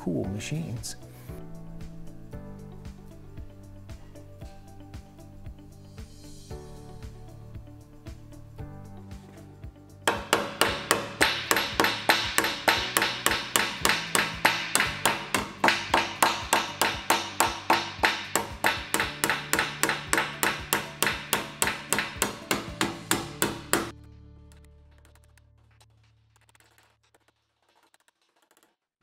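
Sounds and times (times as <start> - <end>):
hammer striking sheet metal: 10.1 - 23.9.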